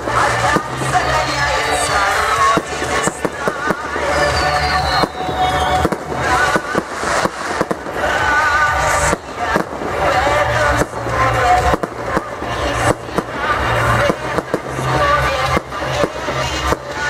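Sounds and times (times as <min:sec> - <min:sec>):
fireworks bangs and crackles: 0:00.0 - 0:17.0
music playing: 0:00.0 - 0:17.0.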